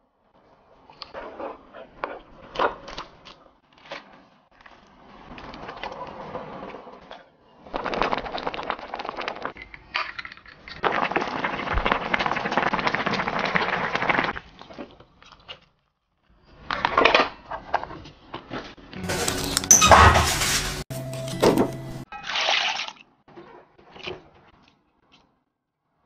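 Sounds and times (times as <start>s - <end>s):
broth boiling and bubbling: 7.7s - 15.6s.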